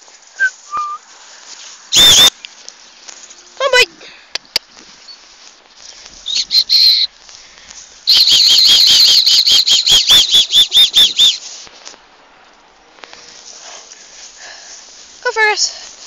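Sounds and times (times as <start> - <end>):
shrill dog whistle toots: 0.4 - 1.0, 2.0 - 2.3, 6.3 - 7.1, 8.1 - 11.4.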